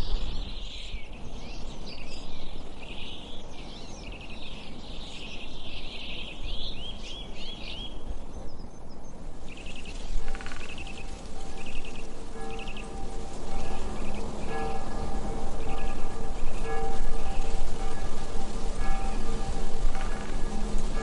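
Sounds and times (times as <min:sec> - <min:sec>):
birds chirping and trilling: 0:00.0 - 0:21.0
steady low rumble: 0:09.3 - 0:21.0
sustained music tones: 0:09.8 - 0:21.0.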